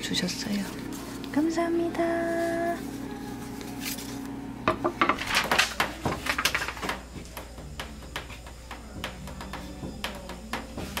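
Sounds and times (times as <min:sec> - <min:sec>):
objects clattering and rustling: 0:03.6 - 0:07.2.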